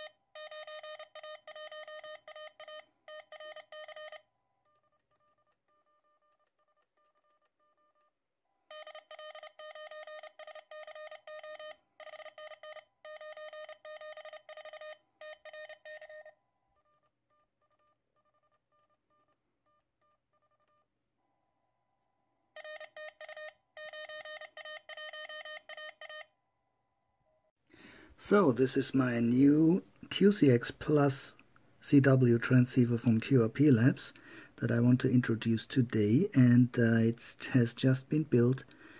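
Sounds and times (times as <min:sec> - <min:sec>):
loud keyed morse tones: 0:00.0 - 0:04.2
faint morse code tones: 0:00.0 - 0:06.4, 0:08.7 - 0:20.8.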